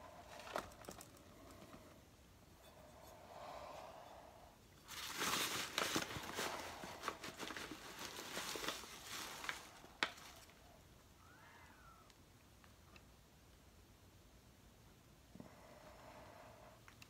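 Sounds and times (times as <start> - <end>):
paper bag crinkling: 0.2 - 1.2, 4.9 - 10.6.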